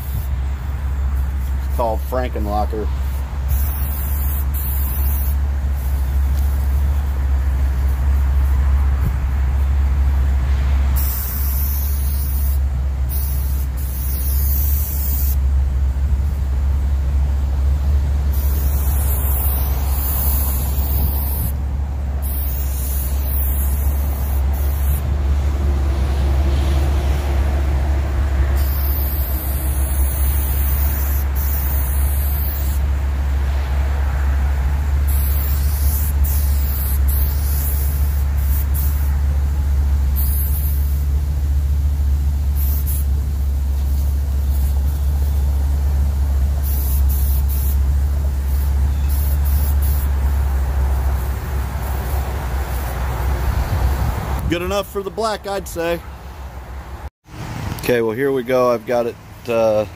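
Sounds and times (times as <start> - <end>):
spray paint can hissing: 0.0 - 0.4, 3.0 - 7.0, 11.0 - 15.4, 18.3 - 21.6, 22.2 - 25.1, 28.5 - 32.8, 35.0 - 39.2, 40.1 - 41.1, 42.4 - 53.0
steady low rumble: 0.0 - 57.1.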